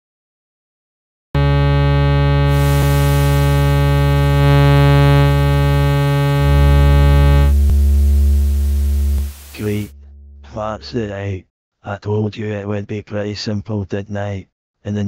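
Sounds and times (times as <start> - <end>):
synthesizer tone: 1.4 - 10.9
white noise hiss: 2.5 - 9.9.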